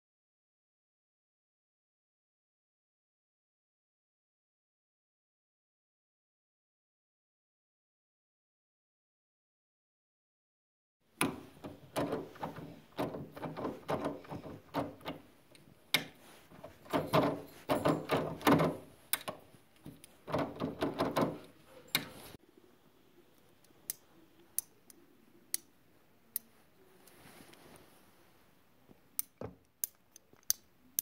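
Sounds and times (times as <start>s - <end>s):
door lever lock clicking and rattling: 11.2s - 22.3s.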